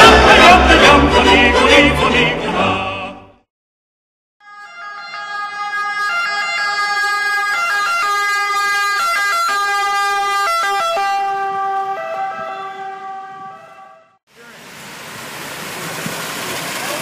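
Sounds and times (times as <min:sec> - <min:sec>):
ambulance siren passing: 0:04.4 - 0:14.2.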